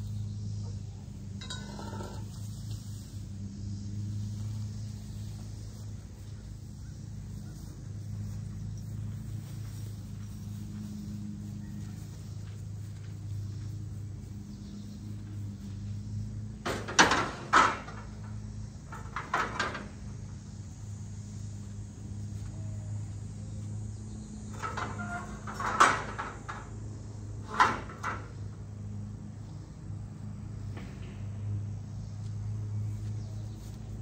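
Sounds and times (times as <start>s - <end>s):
steady low hum: 0.0s - 34.0s
scrap metal clanking: 1.4s - 2.4s.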